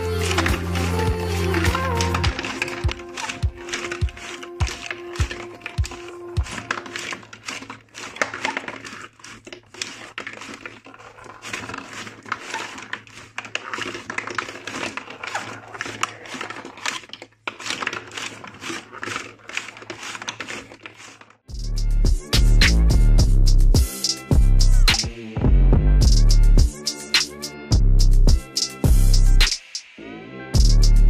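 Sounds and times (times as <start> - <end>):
glass marbles clicking and rattling: 0.0 - 21.2.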